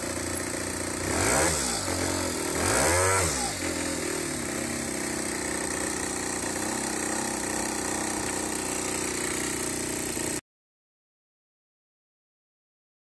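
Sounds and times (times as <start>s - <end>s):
scooter engine idling: 0.0s - 10.4s.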